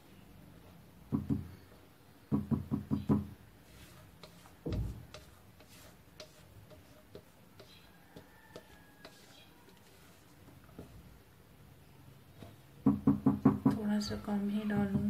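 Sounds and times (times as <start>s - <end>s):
batter being scraped: 3.6s - 10.3s
spatula knocking on mixing bowl: 4.2s - 9.3s.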